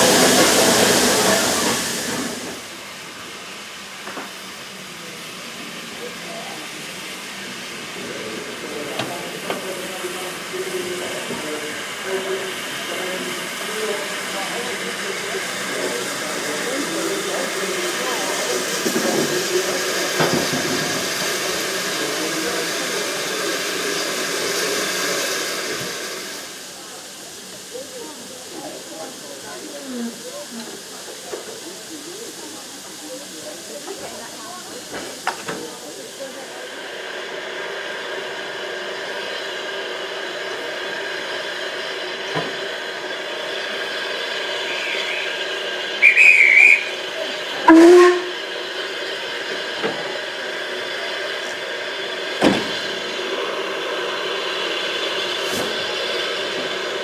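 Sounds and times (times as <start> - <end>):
steam hissing: 0.0 - 57.0
whistle trilling: 44.6 - 47.0.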